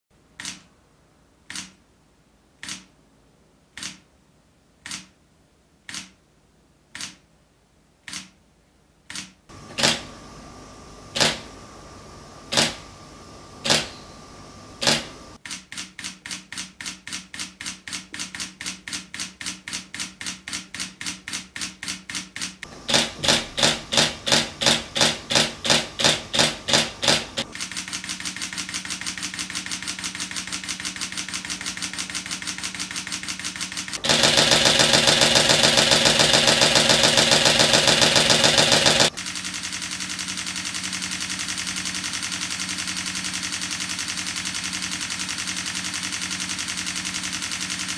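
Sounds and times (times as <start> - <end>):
camera shutter firing: 11.2 - 11.5, 12.5 - 12.8, 13.6 - 14.0, 14.8 - 15.6, 22.9 - 28.8, 33.9 - 39.2.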